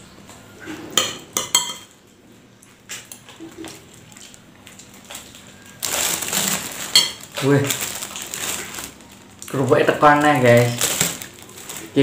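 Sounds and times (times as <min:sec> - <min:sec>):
spoon clinking on ceramic bowl: 0:01.0 - 0:01.9
crackers crackling rustle: 0:03.0 - 0:12.0.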